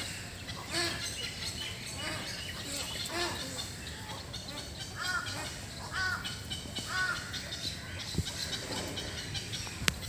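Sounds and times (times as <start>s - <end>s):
small birds chirping: 0.0s - 10.0s.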